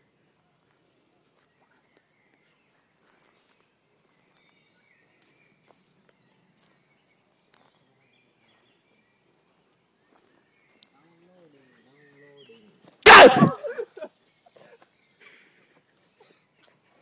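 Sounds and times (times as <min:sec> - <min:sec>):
soft bird chirps: 0:00.6 - 0:12.8.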